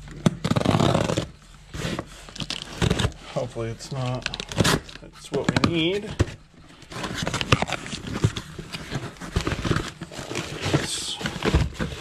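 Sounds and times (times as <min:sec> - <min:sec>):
plastic packaging rustling: 0:00.0 - 0:12.0.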